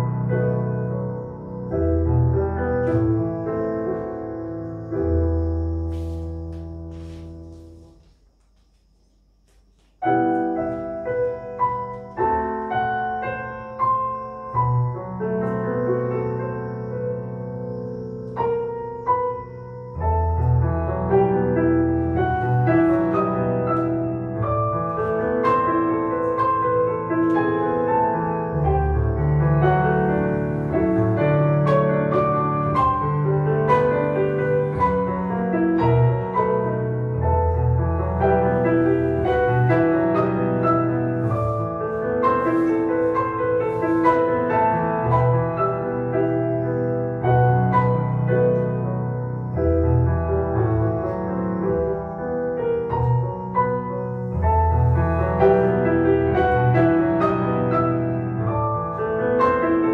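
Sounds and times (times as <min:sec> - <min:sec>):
solo piano music: 0:00.0 - 0:59.9.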